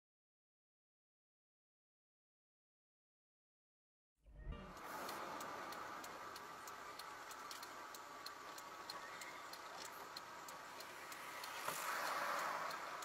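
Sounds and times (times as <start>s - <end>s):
car indicator ticking: 4.7s - 13.0s.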